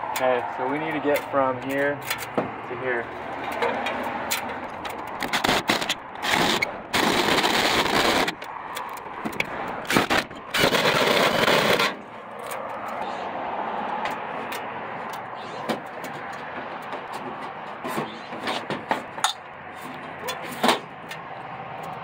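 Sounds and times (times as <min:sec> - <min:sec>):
sharp clicks and knocks: 0:14.0 - 0:22.0.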